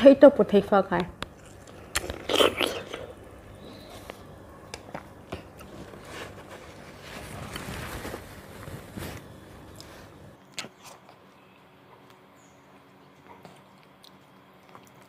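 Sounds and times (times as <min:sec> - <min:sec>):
mouth clicks and smacks: 0:01.2 - 0:03.2
wet chewing and sucking: 0:01.2 - 0:07.7, 0:08.4 - 0:11.4, 0:12.0 - 0:15.0.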